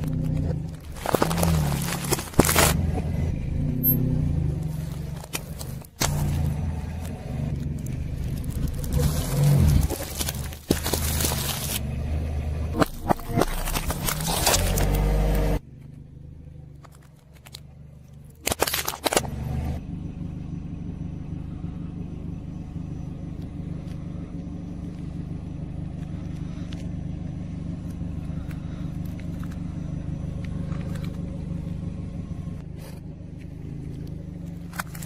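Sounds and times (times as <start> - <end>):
tyre crunching plastic box: 0.0 - 2.8, 7.6 - 11.8, 12.7 - 15.5, 18.4 - 19.4
tyre crushing plastic packs: 0.0 - 2.8, 7.8 - 11.8, 12.8 - 15.4, 18.4 - 19.3
car engine hum: 0.0 - 35.0.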